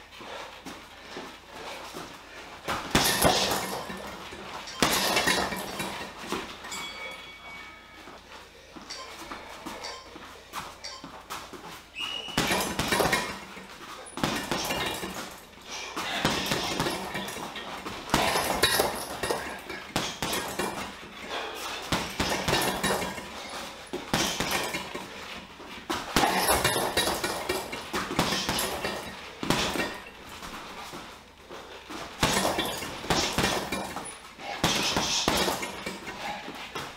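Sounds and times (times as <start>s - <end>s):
gloves punching heavy bag: 2.4s - 6.8s, 12.0s - 36.9s.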